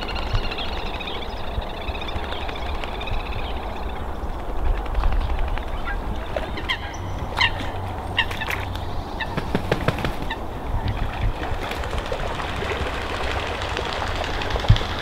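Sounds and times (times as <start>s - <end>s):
steady low rumble: 0.0s - 15.0s
waterfowl calling: 5.6s - 11.6s.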